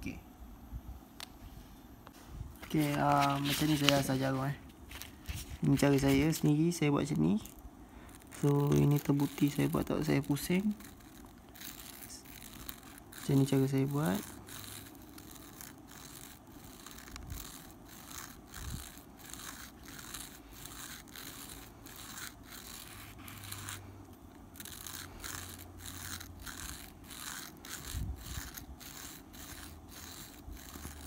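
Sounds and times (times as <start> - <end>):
metal needle scratching on sandpaper: 2.6 - 31.0.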